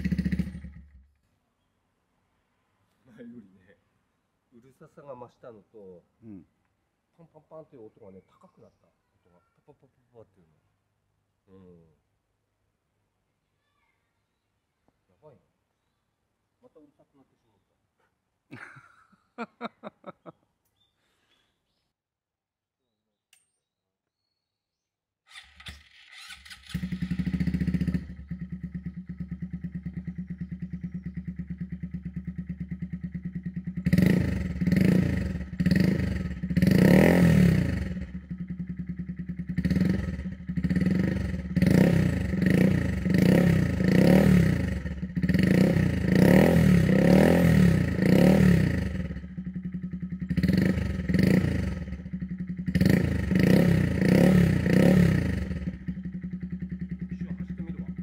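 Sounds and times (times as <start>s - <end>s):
motorcycle engine idling: 0.0s - 1.2s, 25.4s - 58.0s
motorcycle engine revving: 0.0s - 1.2s, 25.3s - 58.0s.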